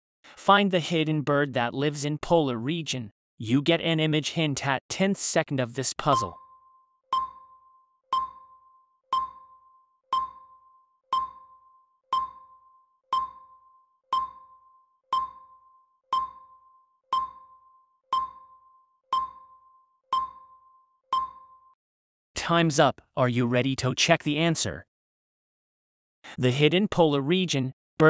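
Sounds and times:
short pitched timer ping: 0:06.1 - 0:21.8.

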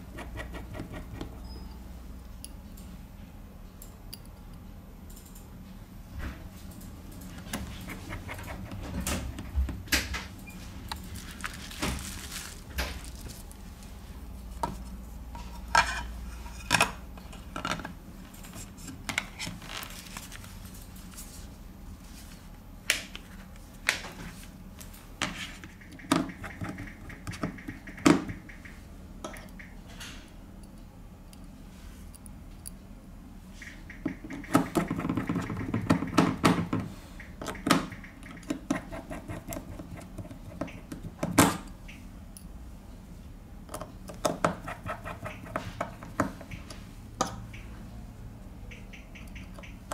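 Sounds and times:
hand tools clicking and tapping: 0:25.6 - 0:29.8, 0:33.6 - 0:41.8, 0:43.7 - 0:47.7.

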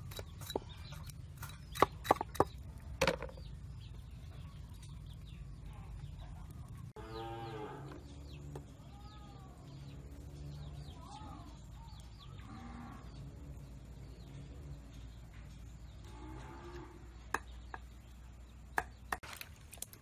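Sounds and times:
small birds chirping: 0:00.0 - 0:20.0
cattle mooing: 0:07.0 - 0:08.0.

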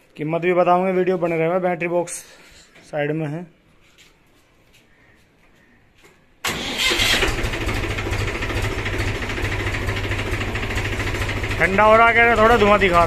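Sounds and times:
diesel tractor engine starting and idling: 0:06.4 - 0:13.0.

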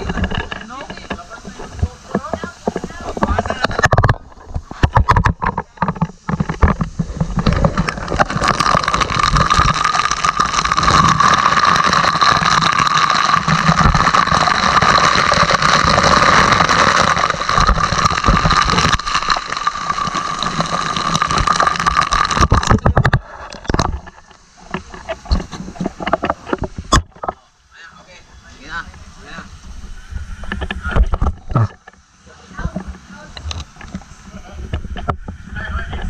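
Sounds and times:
water spray splashing on metal deck: 0:00.0 - 0:05.0.

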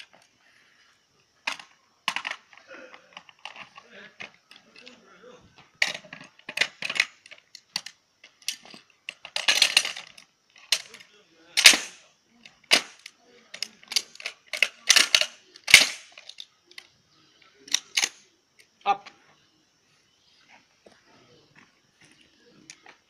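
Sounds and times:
metal parts clicking and clacking: 0:01.4 - 0:05.0, 0:05.8 - 0:16.9, 0:17.7 - 0:18.2
metal rattle: 0:05.8 - 0:11.0, 0:12.7 - 0:16.4.

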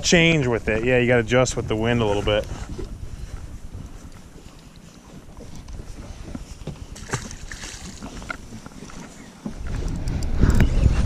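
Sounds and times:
waves lapping against hull: 0:00.0 - 0:11.0
wind buffeting microphone: 0:00.0 - 0:11.0.

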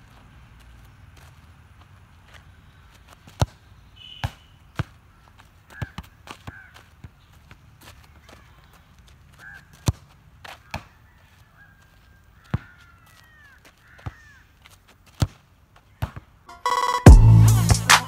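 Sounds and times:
birds calling: 0:02.4 - 0:07.4
football being kicked: 0:16.0 - 0:16.3.

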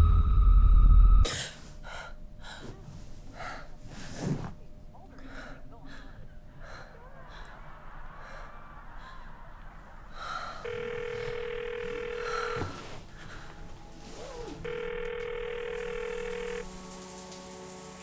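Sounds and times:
phone ringing: 0:10.6 - 0:13.0, 0:14.6 - 0:16.7.

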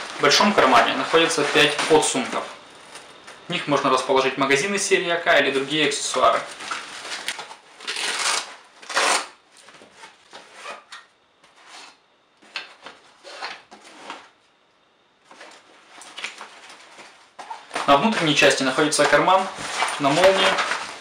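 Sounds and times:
heavy fabric rustling: 0:15.3 - 0:21.0.

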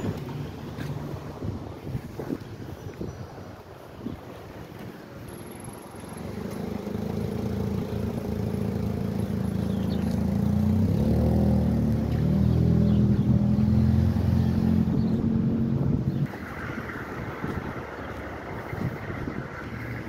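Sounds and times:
vehicle engine approaching: 0:05.4 - 0:20.0.

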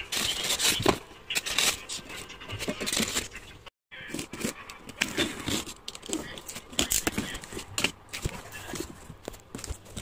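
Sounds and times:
styrofoam scraping: 0:00.0 - 0:03.4.

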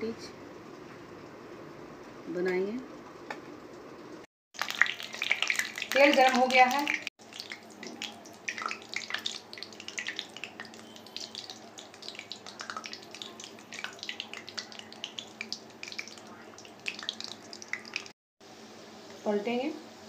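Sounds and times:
hot oil sizzling and crackling: 0:04.6 - 0:19.4.

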